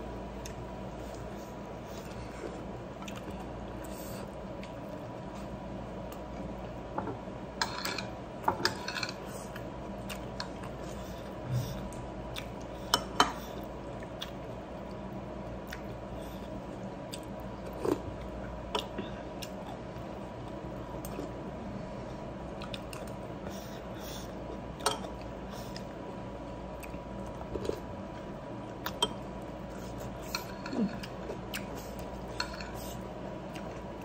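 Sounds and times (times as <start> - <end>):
steady low hum: 0.0 - 34.0
person chewing and smacking: 2.9 - 6.6, 9.4 - 12.8, 13.6 - 21.4, 22.5 - 23.4, 26.7 - 34.0.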